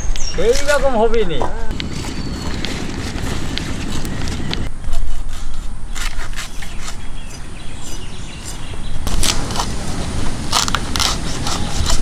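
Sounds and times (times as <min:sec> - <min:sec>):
blades cutting and snapping: 0:07.8 - 0:09.8, 0:10.4 - 0:12.0.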